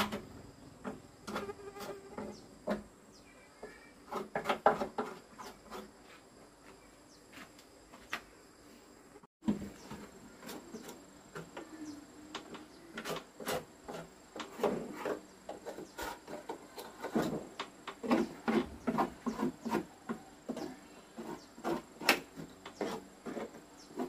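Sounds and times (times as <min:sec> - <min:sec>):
metal blade scraping wood: 0:01.2 - 0:02.7, 0:04.0 - 0:06.0, 0:13.0 - 0:24.0
grit rattling against wood: 0:04.1 - 0:06.0, 0:09.4 - 0:24.0.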